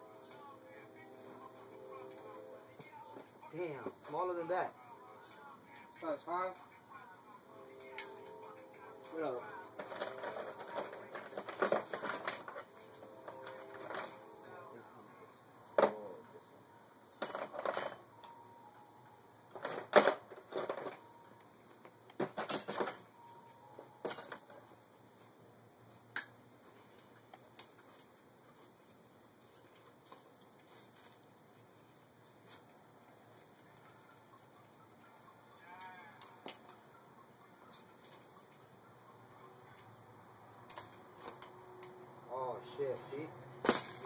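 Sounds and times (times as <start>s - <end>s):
metal tools clinking on bicycle parts: 7.9s - 8.5s, 9.1s - 14.4s, 17.2s - 18.3s, 22.2s - 23.2s, 24.0s - 24.6s, 40.7s - 41.5s, 43.6s - 44.0s.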